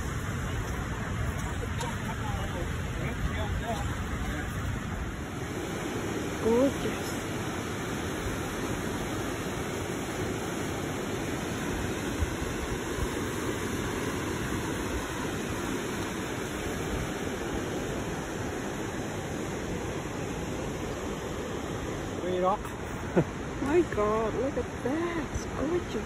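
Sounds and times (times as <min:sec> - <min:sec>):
creek water rushing: 0:00.0 - 0:26.0.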